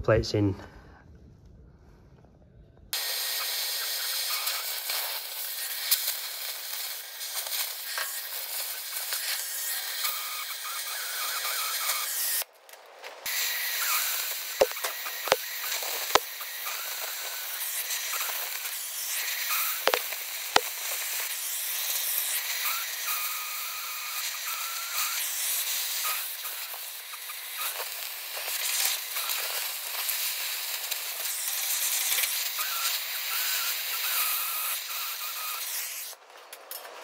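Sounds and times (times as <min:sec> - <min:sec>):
gas cutting torch hissing: 0:02.9 - 0:12.5, 0:13.2 - 0:36.2
sharp pops: 0:03.0 - 0:23.2.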